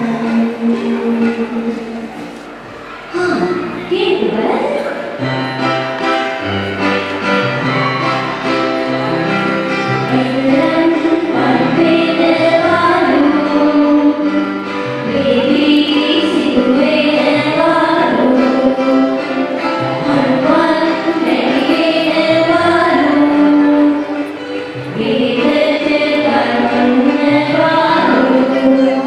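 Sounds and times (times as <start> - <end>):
song with instrumental accompaniment: 4.8 - 29.0.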